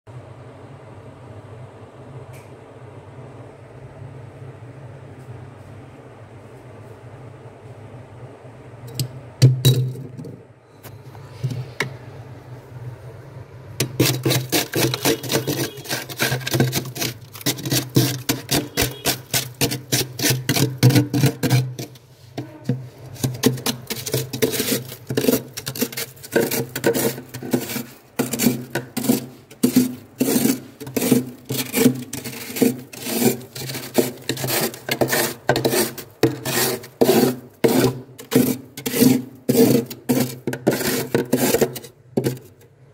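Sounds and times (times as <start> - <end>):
spoon scraping frost: 10.8 - 11.9, 13.8 - 42.6.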